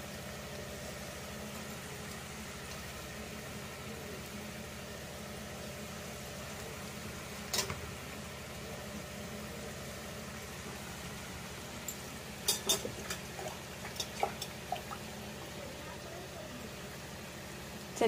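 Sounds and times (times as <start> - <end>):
dough balls deep-frying in oil: 0.0 - 18.0
oil popping and spitting: 12.7 - 15.5.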